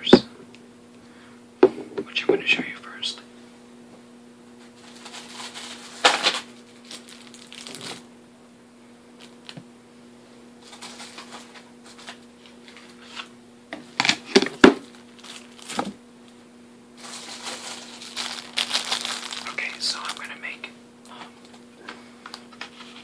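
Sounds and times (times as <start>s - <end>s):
packaging crinkling and rustling: 4.6s - 8.1s, 10.6s - 13.3s, 14.2s - 16.0s, 17.0s - 20.5s.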